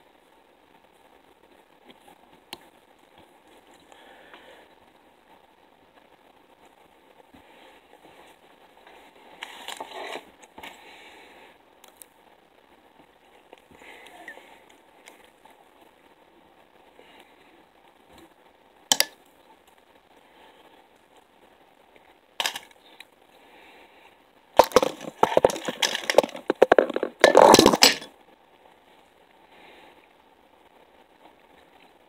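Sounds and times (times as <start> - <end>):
crackling and rustling of materials: 0.0 - 32.0
sharp clicks: 18.9 - 19.2.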